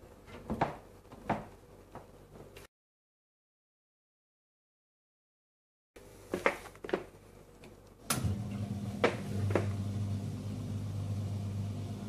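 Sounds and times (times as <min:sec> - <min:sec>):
dishwasher motor humming: 0:08.1 - 0:12.0.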